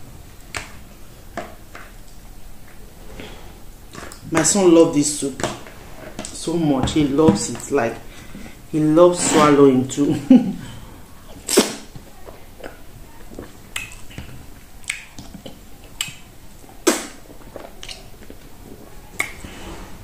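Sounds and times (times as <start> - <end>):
quiet chewing: 10.7 - 19.8.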